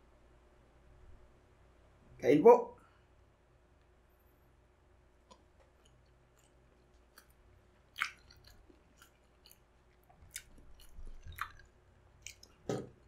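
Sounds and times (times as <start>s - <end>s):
person chewing with wet smacks: 5.3s - 13.0s.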